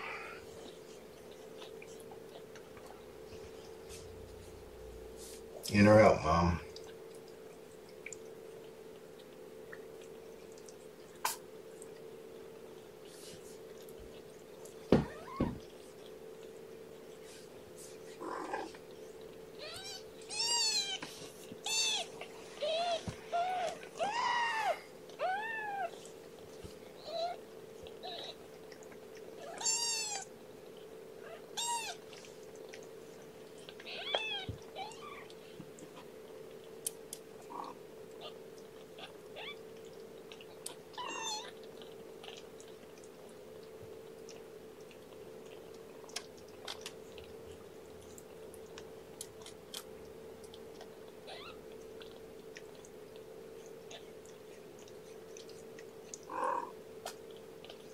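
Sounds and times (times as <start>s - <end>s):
faint hum: 0.0s - 57.9s
kittens mewing: 21.6s - 26.0s, 29.4s - 30.3s, 31.2s - 32.0s, 56.3s - 56.8s.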